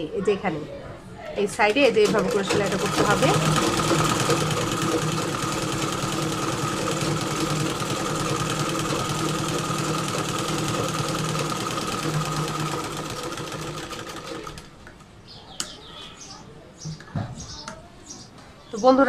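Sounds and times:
sewing machine running: 1.7 - 14.7.

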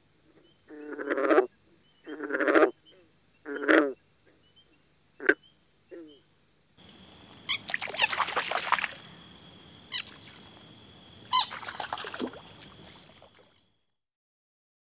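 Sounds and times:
faint steady hiss: 0.0 - 14.0
frog croaking: 0.7 - 4.0, 5.2 - 6.2, 6.8 - 13.6.

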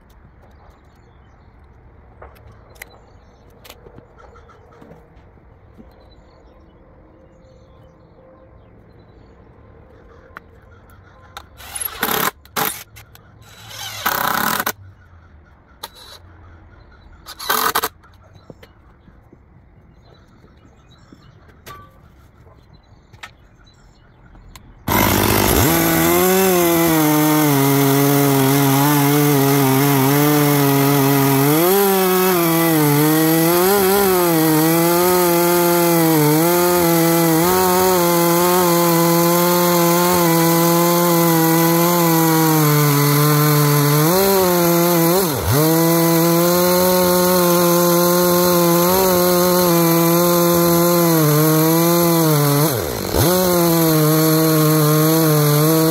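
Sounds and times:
chainsaw cutting log: 11.6 - 14.8, 17.3 - 18.0, 24.9 - 55.9.

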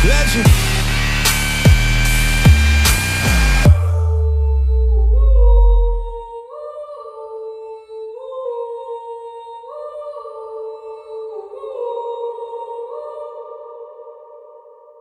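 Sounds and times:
deep bass hit: 0.0 - 6.3.

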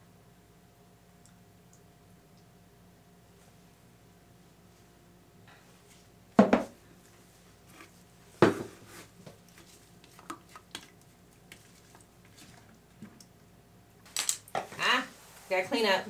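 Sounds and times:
plastic pitcher knocking on countertop: 6.4 - 6.8, 8.4 - 8.8.

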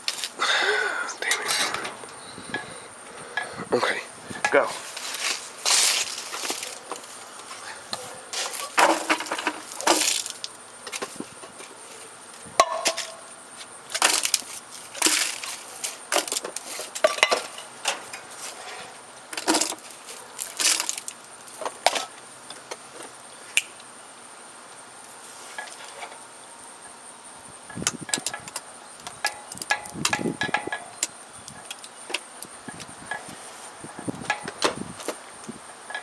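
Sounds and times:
food clattering into plastic bucket: 8.4 - 11.1, 13.9 - 18.2, 19.3 - 22.1.

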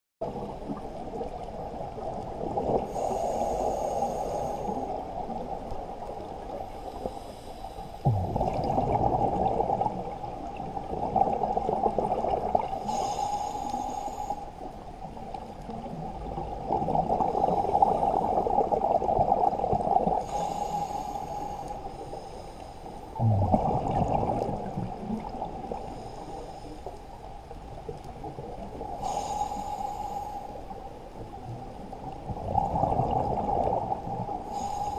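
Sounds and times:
regulator breath hissing: 2.9 - 4.9, 6.8 - 8.0, 12.8 - 14.5, 20.2 - 22.9, 29.0 - 30.6, 34.5 - 34.9
bubbling exhalations: 8.1 - 10.1, 23.2 - 25.3.

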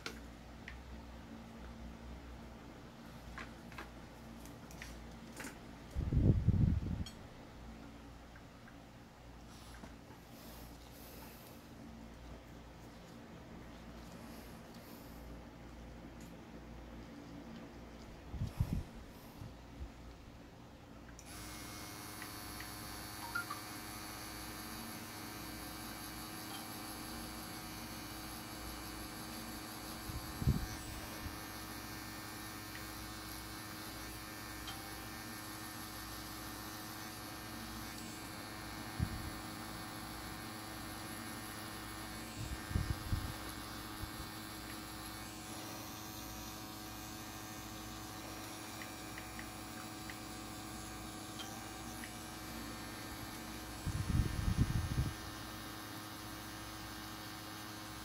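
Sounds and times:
tattoo machine humming: 21.2 - 58.0.

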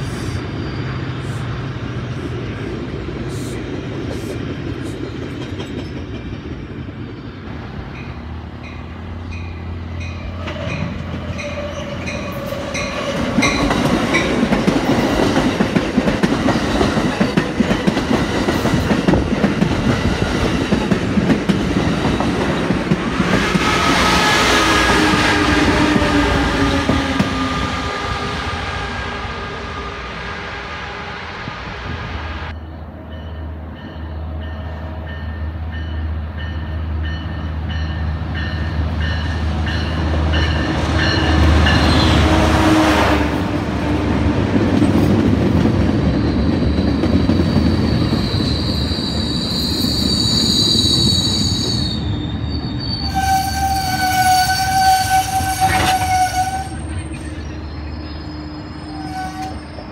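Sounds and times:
train wheel squeal: 0.0 - 2.3, 10.1 - 14.3, 46.0 - 59.9
train rolling past: 0.0 - 59.9.

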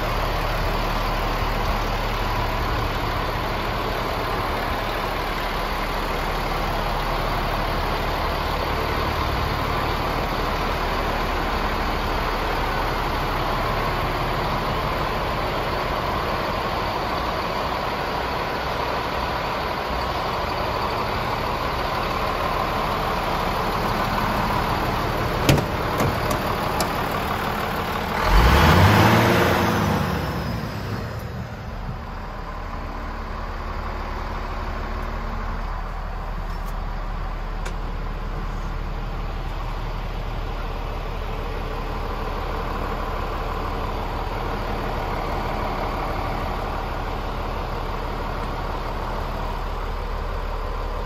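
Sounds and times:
diesel engine idling: 0.0 - 51.0
engine revving surge: 28.1 - 31.2.

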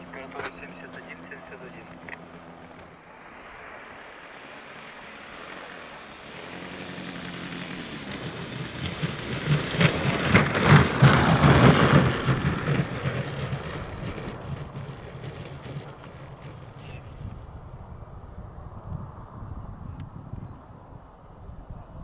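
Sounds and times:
drone engine and propeller: 0.0 - 20.2
wheels rolling: 4.4 - 17.6.

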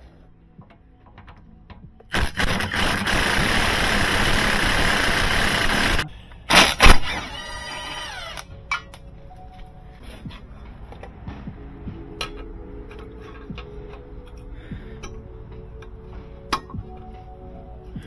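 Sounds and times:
impact wrench running: 2.1 - 8.4
motor winding down whine: 2.2 - 8.4.

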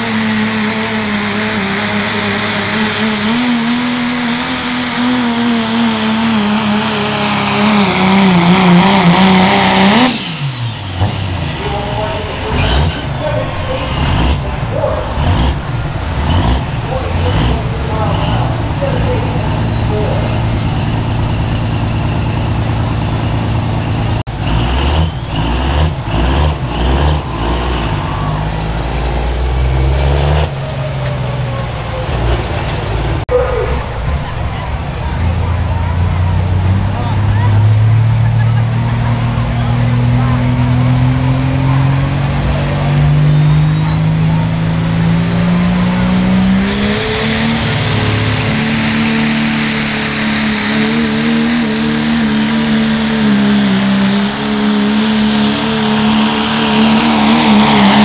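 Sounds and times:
diesel truck engine revving: 0.0 - 58.0.

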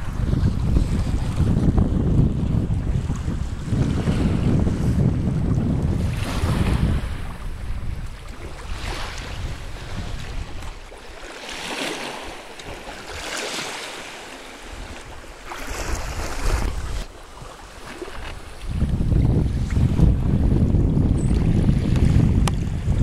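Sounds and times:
water splashing around canoe: 0.0 - 23.0
wind buffeting microphone: 0.0 - 23.0.

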